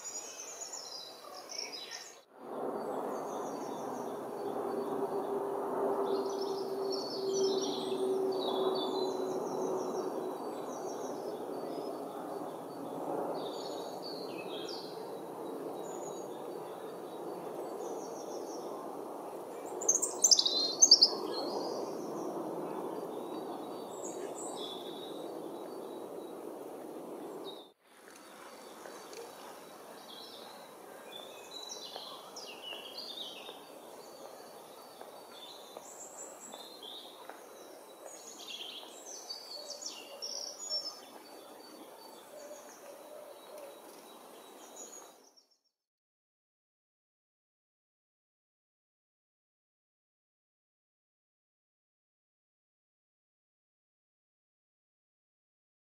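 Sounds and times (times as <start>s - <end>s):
robin singing: 6.1s - 26.5s.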